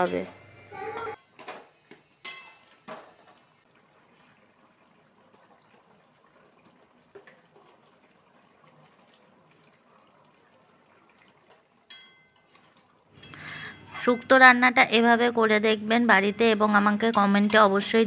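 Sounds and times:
ringing metal clink: 0:11.9 - 0:12.4
spatula scraping metal pot: 0:12.3 - 0:14.3.

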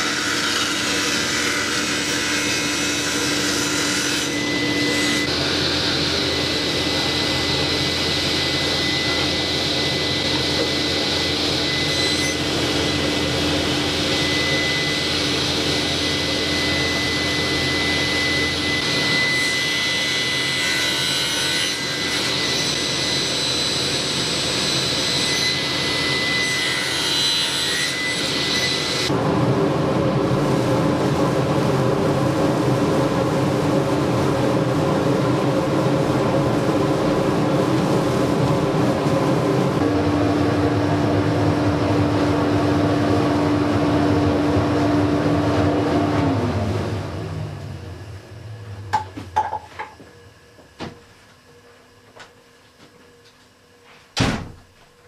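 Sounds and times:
dust collector air rush: 0:00.0 - 0:20.5, 0:29.1 - 0:48.8
table saw cutting wood: 0:00.0 - 0:29.2.

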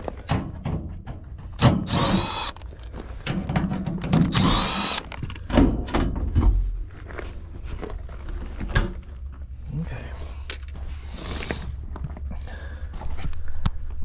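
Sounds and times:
cordless drill whirring: 0:01.8 - 0:02.7, 0:04.3 - 0:05.2.

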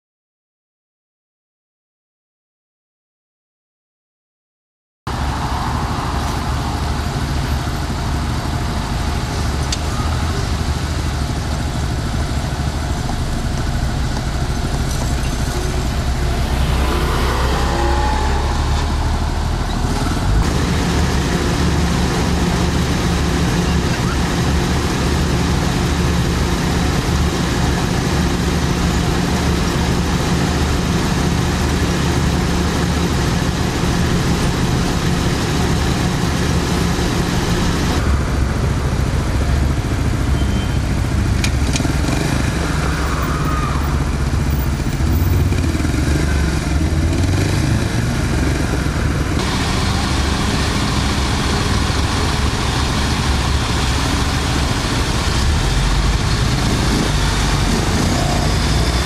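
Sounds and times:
motorcycle engine idling: 0:06.5 - 0:16.5, 0:19.4 - 0:47.1.

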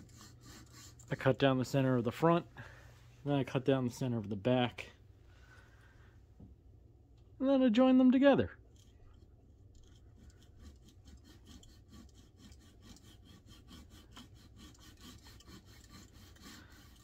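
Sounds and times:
coping saw cutting wood: 0:00.0 - 0:01.6, 0:10.1 - 0:17.0.

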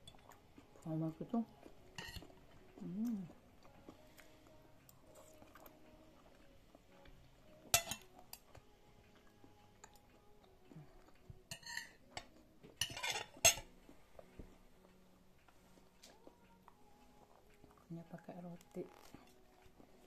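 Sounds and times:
cutlery clinking and scraping on plate: 0:01.9 - 0:02.3, 0:07.7 - 0:08.1, 0:11.5 - 0:13.7.

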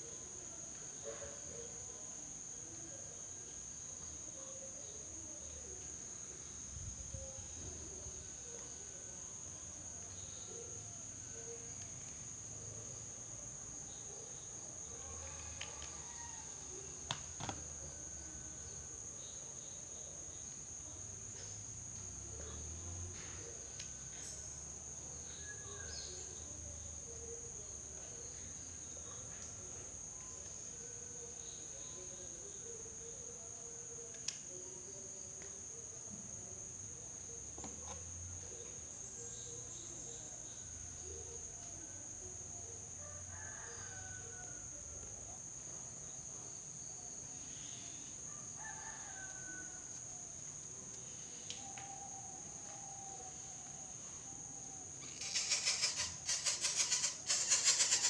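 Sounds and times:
high-pitched insect drone: 0:55.0 - 0:58.0.

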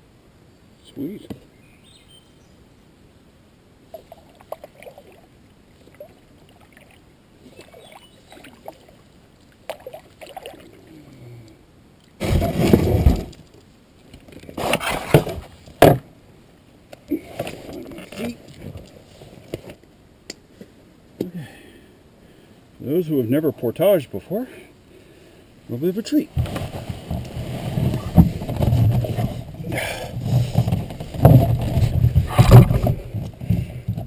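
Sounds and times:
splashing and scraping: 0:03.9 - 0:11.3, 0:12.0 - 0:16.0, 0:17.1 - 0:19.8, 0:26.3 - 0:34.0
paddle splashes and drips: 0:04.0 - 0:10.8.

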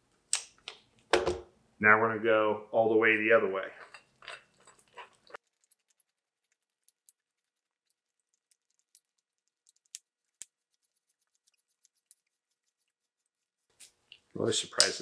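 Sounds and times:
faint metallic clicks and ticks: 0:03.9 - 0:12.9.

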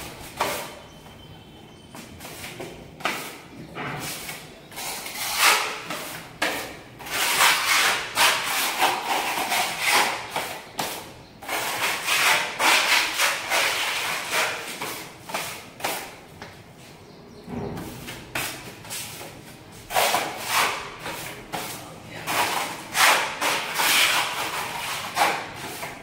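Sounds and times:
putty blade scraping wall: 0:00.0 - 0:00.8, 0:02.2 - 0:16.1, 0:19.9 - 0:26.0.

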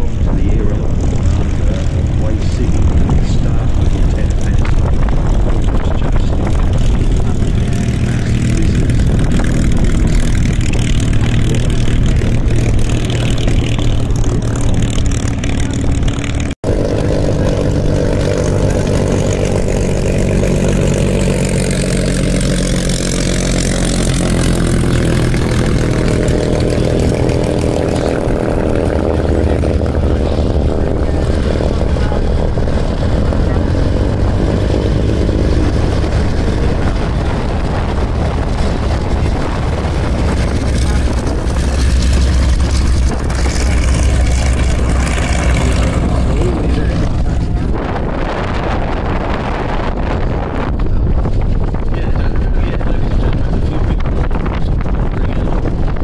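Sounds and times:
propeller aircraft piston engine: 0:00.0 - 0:56.0.

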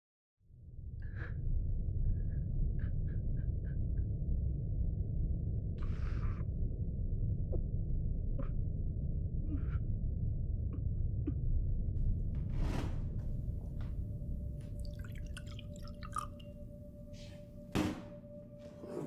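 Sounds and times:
low rumble: 0:00.7 - 0:14.9
milk pouring into glass: 0:14.8 - 0:16.5.

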